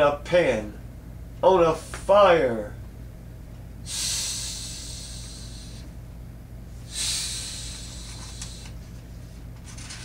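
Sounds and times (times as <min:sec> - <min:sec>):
person hissing through teeth: 0:03.9 - 0:05.9, 0:06.9 - 0:08.8.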